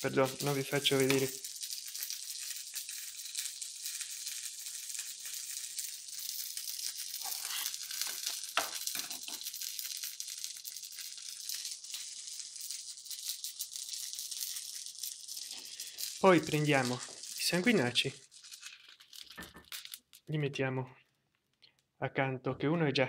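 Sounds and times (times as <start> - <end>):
steady high hiss: 0.0 - 9.6, 15.4 - 18.2
metal spoon scraping saucepan: 7.2 - 9.4.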